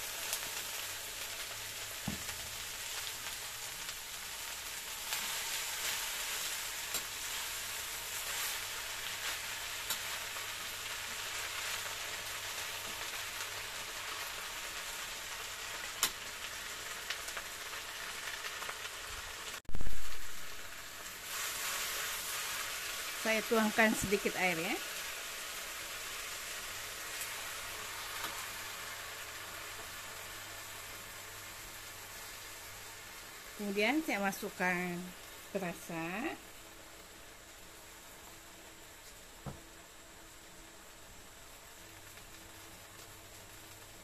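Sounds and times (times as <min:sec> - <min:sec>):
vegetables sizzling in a wok: 0:00.0 - 0:44.0.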